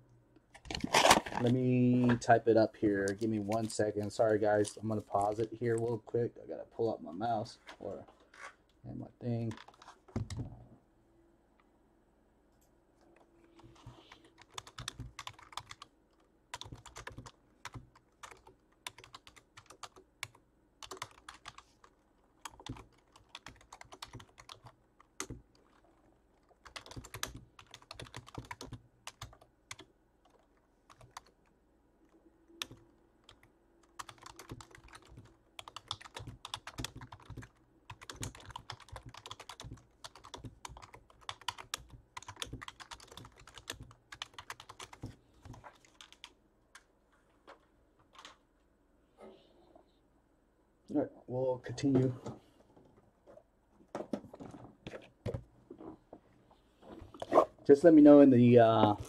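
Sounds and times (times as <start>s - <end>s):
typing on a keyboard: 14.3s - 15.9s, 16.5s - 21.6s, 22.4s - 25.8s, 26.4s - 31.3s, 32.6s - 46.3s.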